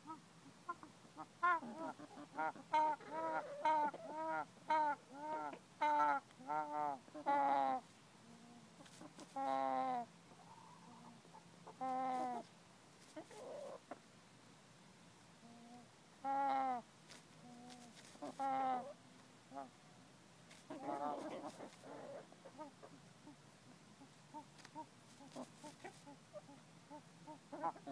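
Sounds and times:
hen clucking: 0.0 - 7.8, 8.4 - 12.5, 13.1 - 14.0, 17.5 - 19.7, 20.6 - 23.4, 24.0 - 27.9
hen drawn-out calls: 0.0 - 12.5, 13.1 - 14.0, 15.4 - 19.8, 20.6 - 23.4, 24.0 - 27.9.

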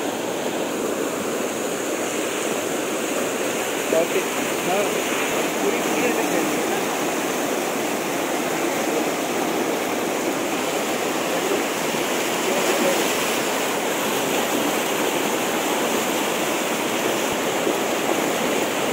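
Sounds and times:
river water rushing over rocks: 0.0 - 18.9.

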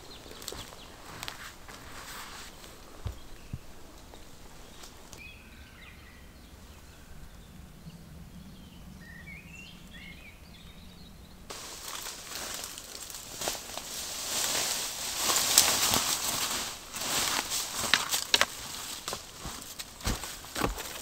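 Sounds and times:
rustling hiss: 0.0 - 5.5, 11.5 - 21.0
birds chirping: 0.0 - 21.0
low steady hum: 0.0 - 21.0.

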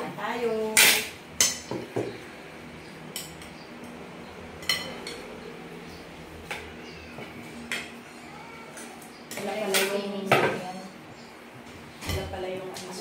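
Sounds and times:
cutlery clinking on ceramic plates: 4.6 - 5.3.

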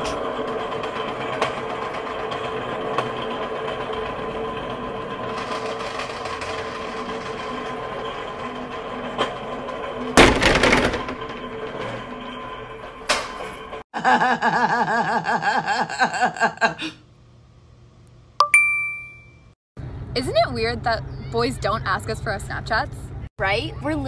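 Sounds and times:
electric pallet jack whining: 0.0 - 13.8
loud crash with clatter: 10.0 - 12.3.

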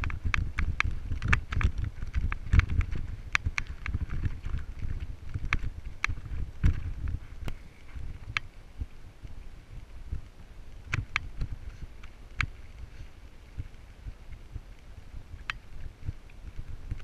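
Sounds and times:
bike clicks and knocks: 0.0 - 7.6
wind buffeting microphone: 0.0 - 17.0.

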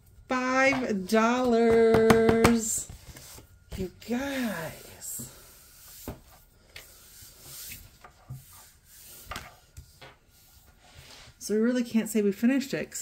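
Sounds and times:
paper sliding on wooden table: 4.4 - 11.4.

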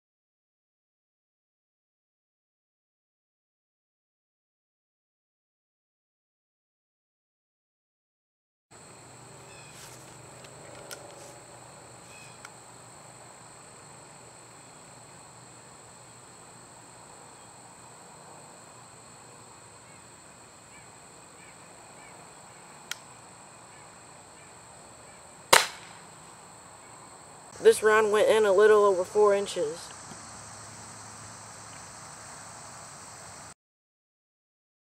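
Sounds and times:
insects chirring: 8.8 - 33.6
air pistol shot: 25.5 - 26.0.

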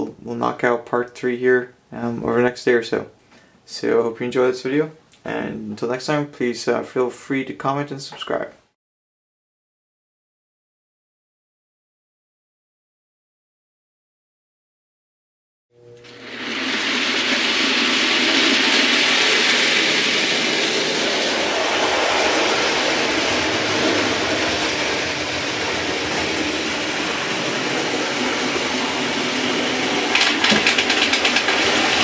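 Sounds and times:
train passing rumble: 17.7 - 32.0.

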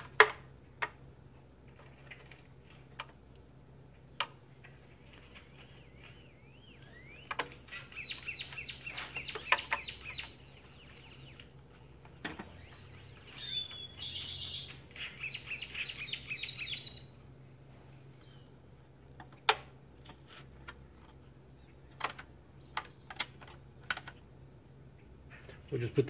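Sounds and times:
small bird chirping: 4.0 - 17.2, 22.6 - 23.4.

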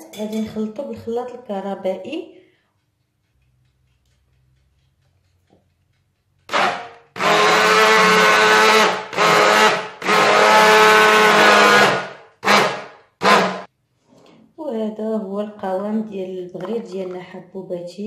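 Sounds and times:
immersion blender motor whine: 6.5 - 12.0.

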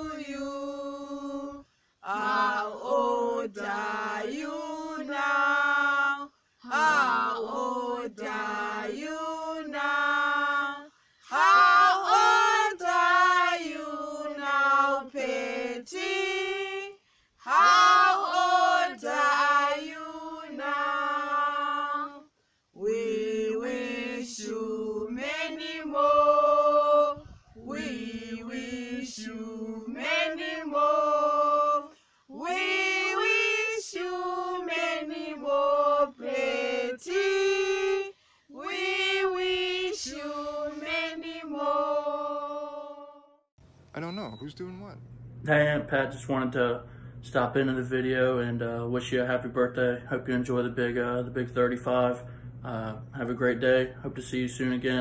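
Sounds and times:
group singing unaccompanied: 0.0 - 43.4.

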